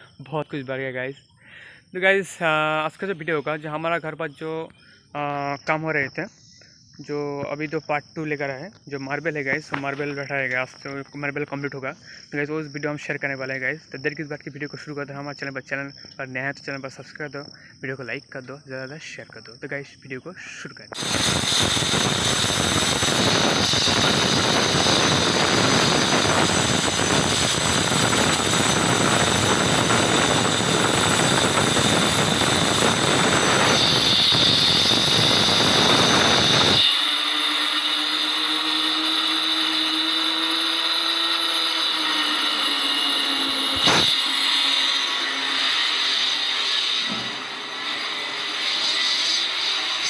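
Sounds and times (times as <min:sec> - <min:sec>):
electric cutter grinding marble: 0:21.0 - 0:50.0.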